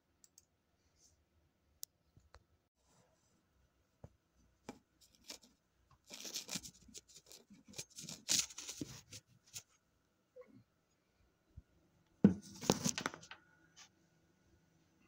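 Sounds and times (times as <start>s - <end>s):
close rustling and scraping: 5.0s - 9.8s.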